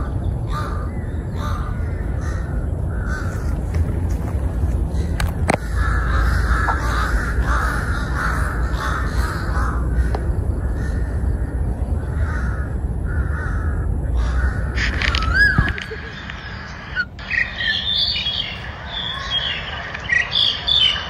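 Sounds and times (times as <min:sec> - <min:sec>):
steady low rumble: 0:00.0 - 0:21.0
crows cawing: 0:00.5 - 0:03.8, 0:04.9 - 0:16.2.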